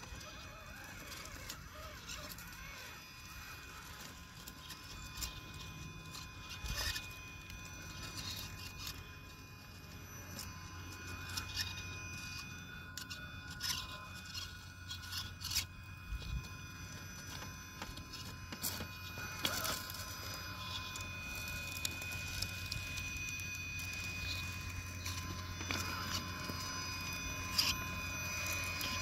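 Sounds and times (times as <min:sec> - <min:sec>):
faint high whine: 0:00.0 - 0:29.0.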